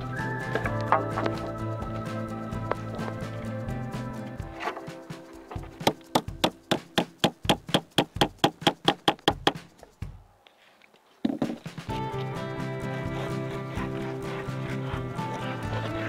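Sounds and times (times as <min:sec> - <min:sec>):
hammer driving nail into wood: 0:05.8 - 0:09.6.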